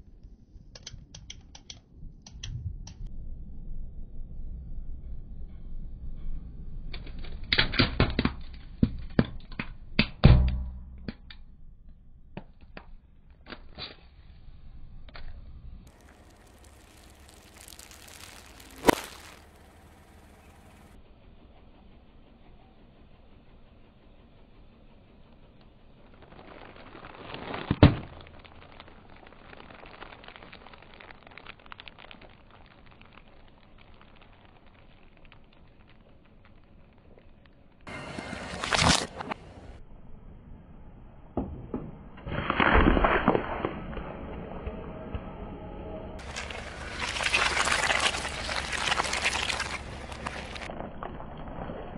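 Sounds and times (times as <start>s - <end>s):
wrapper and grit crackling: 15.8s - 21.0s, 25.9s - 39.4s, 46.2s - 51.9s
tyre crushing plastic toy: 15.9s - 19.6s, 26.2s - 36.9s, 46.2s - 51.7s
plastic bag bursting with a pop: 15.9s - 20.3s, 26.1s - 37.2s
plastic crinkling: 15.9s - 20.6s, 26.0s - 37.6s, 46.2s - 51.9s.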